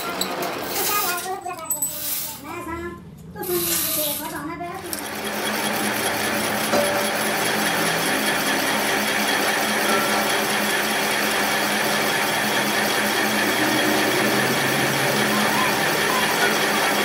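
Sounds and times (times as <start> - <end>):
metal lathe machining: 4.9 - 17.0.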